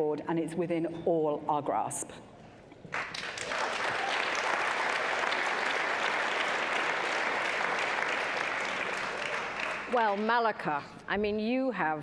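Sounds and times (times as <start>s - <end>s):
audience applauding: 2.9s - 10.2s.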